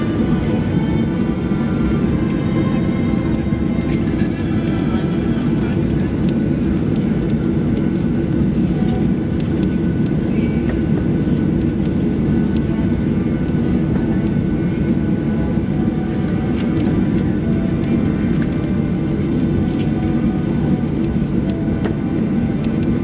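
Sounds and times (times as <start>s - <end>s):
jet engines low rumble: 0.0s - 23.0s.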